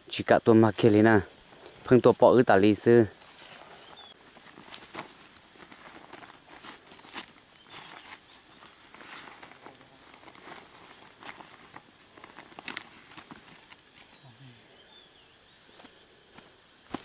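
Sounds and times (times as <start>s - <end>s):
plastic sack rustling and crinkling: 3.2s - 14.2s.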